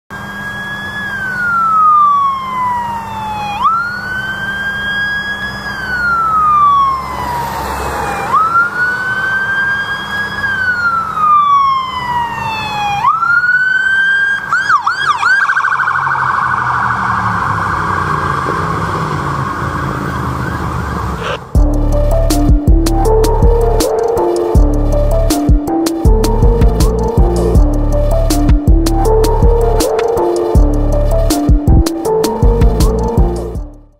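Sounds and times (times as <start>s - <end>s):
police siren wailing and yelping: 0.1s - 33.4s
low traffic rumble: 0.4s - 33.9s.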